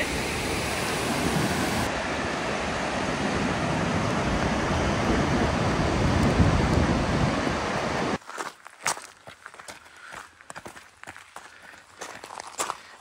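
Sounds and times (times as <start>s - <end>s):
waterfall rushing: 0.0s - 8.2s
wind buffeting microphone: 3.1s - 8.2s.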